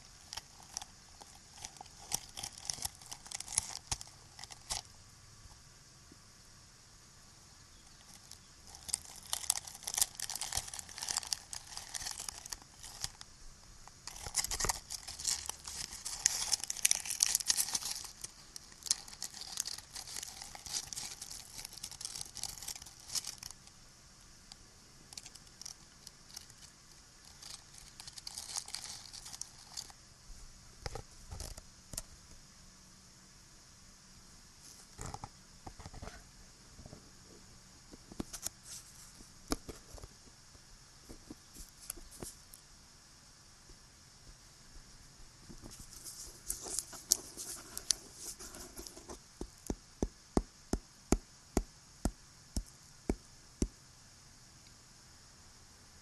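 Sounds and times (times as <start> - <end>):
crinkling and scratching: 0.0 - 4.9, 7.9 - 23.8, 24.5 - 30.0, 30.8 - 32.1, 38.1 - 40.2, 41.0 - 42.6, 45.4 - 49.8.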